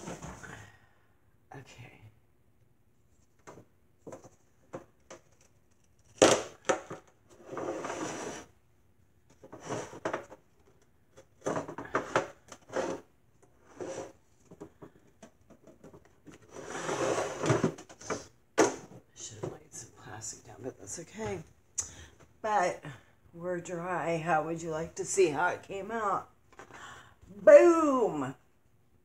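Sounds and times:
objects knocking and clunking: 3.4s - 5.5s, 9.3s - 13.6s, 14.4s - 16.6s, 17.3s - 19.7s
rustling or scraping: 7.2s - 8.6s, 9.3s - 14.7s, 15.6s - 18.3s.

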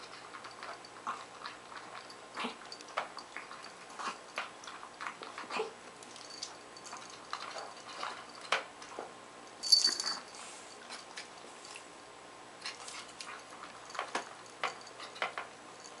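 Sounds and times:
puppy chewing food: 0.0s - 9.1s, 12.6s - 15.7s.

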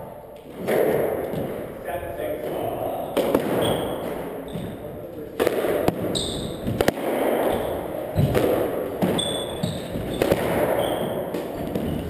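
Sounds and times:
shoe squeaking on floor: 3.0s - 5.0s, 5.9s - 6.8s, 7.5s - 12.0s
squash ball cracking off racquet: 3.2s - 4.8s, 5.4s - 12.0s
footsteps thudding: 3.2s - 12.0s.

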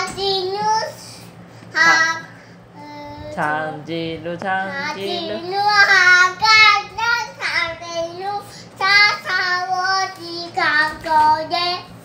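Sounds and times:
toddler singing: 1.8s - 3.4s, 4.7s - 12.0s.

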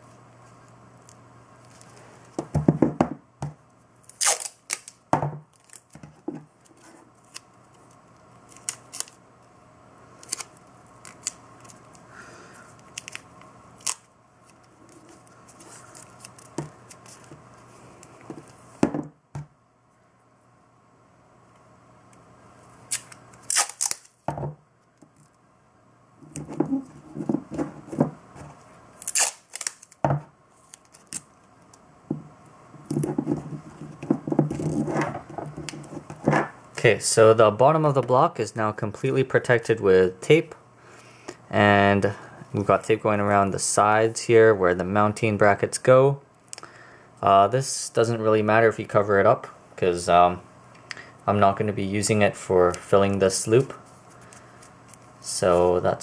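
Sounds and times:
masking tape tearing: 4.0s - 6.0s, 8.5s - 9.2s, 10.2s - 11.8s, 12.9s - 14.1s, 22.9s - 24.2s, 29.0s - 30.0s
tape crinkling and rubbing: 4.0s - 9.2s, 10.2s - 12.0s, 12.7s - 17.7s, 22.9s - 24.2s, 26.2s - 31.8s.

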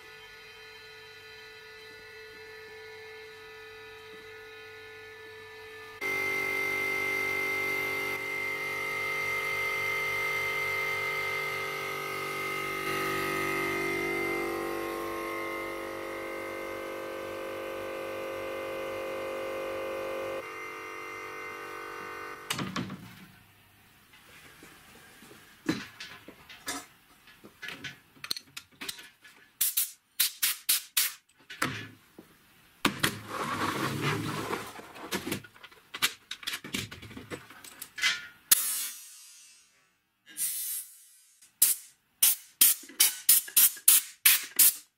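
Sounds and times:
compressor humming: 6.0s - 23.1s.

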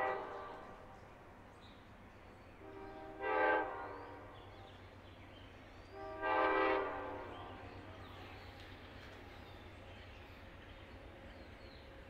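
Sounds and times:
distant train horn blasts: 0.0s - 1.1s, 2.6s - 4.8s, 5.9s - 8.1s.

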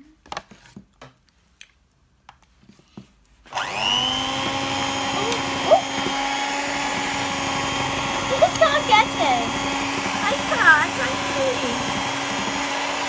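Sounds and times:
electric hand mixer running: 3.5s - 13.0s.

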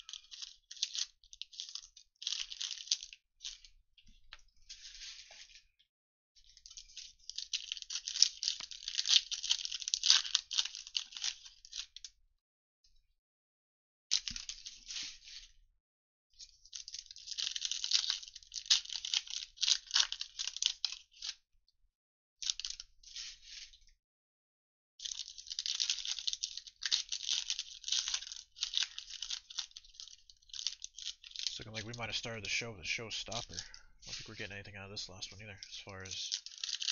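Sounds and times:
foil wrapper crinkling: 0.0s - 3.7s, 6.4s - 12.1s, 16.4s - 21.4s, 25.0s - 36.9s
cards being pulled out: 31.7s - 36.3s.

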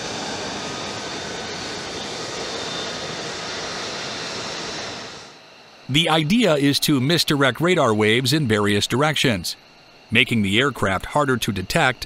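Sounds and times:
jet engine rushing: 0.0s - 9.5s.

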